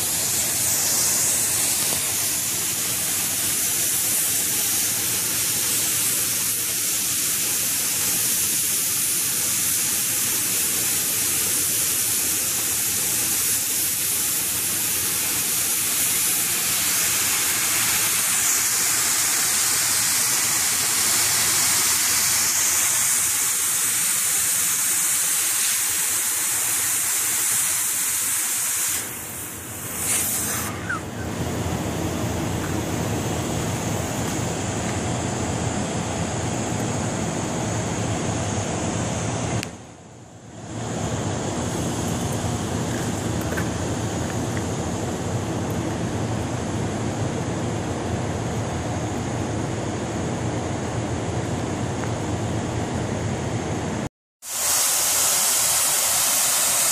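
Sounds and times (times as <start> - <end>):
cutting torches hissing: 0.0 - 39.8, 54.4 - 56.9
low heavy rush: 29.6 - 39.6.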